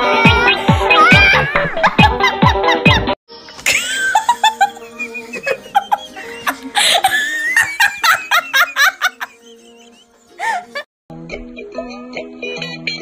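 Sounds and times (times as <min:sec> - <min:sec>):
child's voice: 0:00.0 - 0:01.7
quiet background music: 0:03.3 - 0:13.0.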